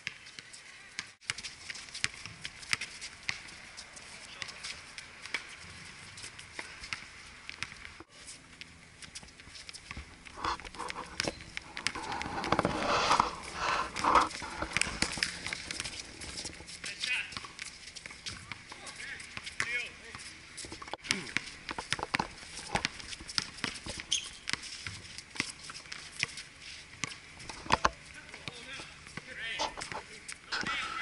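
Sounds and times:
basketball bouncing: 6.6 - 8.0, 13.9 - 16.6, 20.7 - 25.6
players calling out: 28.1 - 31.0.

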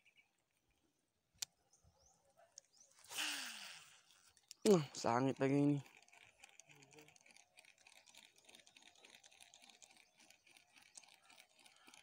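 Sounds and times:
fishing reel ticking and whirring: 3.0 - 12.0.

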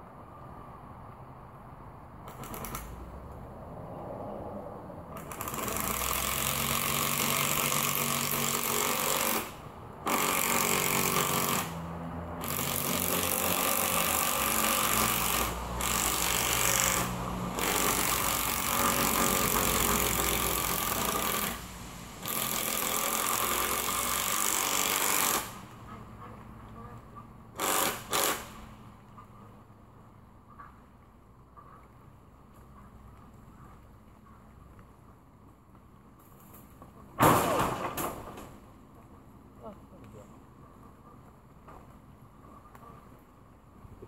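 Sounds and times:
power drill driving screws: 5.2 - 11.8, 12.4 - 25.8, 27.6 - 28.6.

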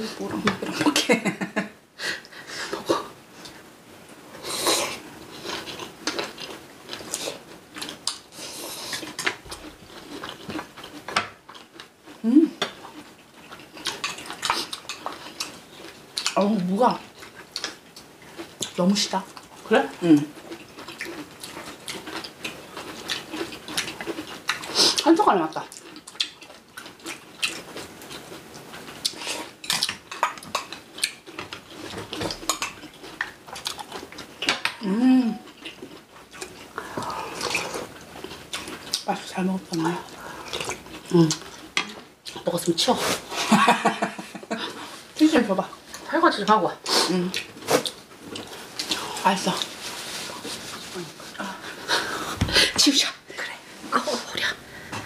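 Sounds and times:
chewing and biting food: 20.4 - 25.0, 25.7 - 34.6.

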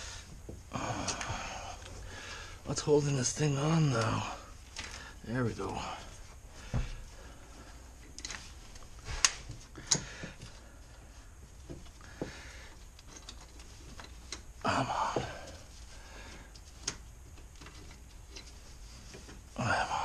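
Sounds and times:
scraping rustle: 10.4 - 20.0.

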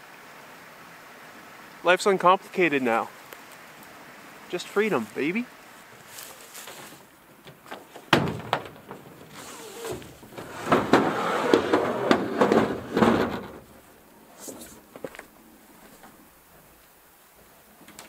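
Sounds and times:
canoe hull scraping roof rack: 5.9 - 14.9.

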